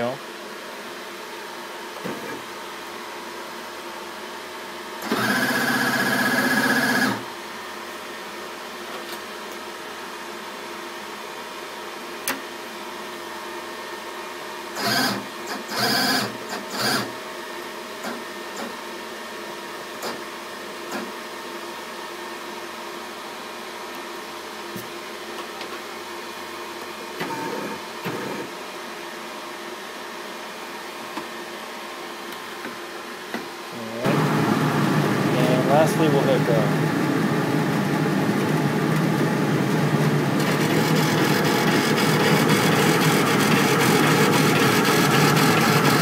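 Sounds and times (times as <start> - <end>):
laser engraver humming: 5.0 - 7.3, 33.7 - 46.0.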